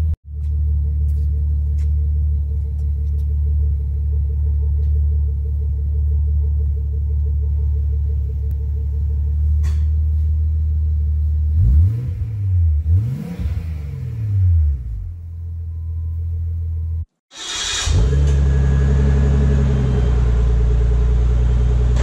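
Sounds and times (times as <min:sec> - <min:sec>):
car engine idling and revving: 0:00.0 - 0:22.0.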